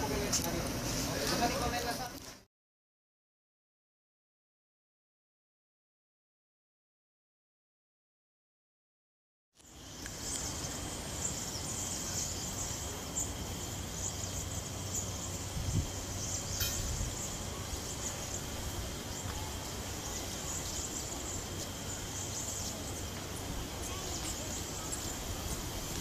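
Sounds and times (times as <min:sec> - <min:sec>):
insects chirring: 0:09.6 - 0:26.0.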